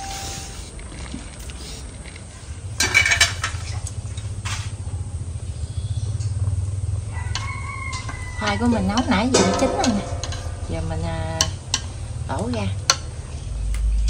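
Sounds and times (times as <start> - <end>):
pot boiling on stove: 0.0 - 13.6
metal pot lid clattering: 7.4 - 11.9.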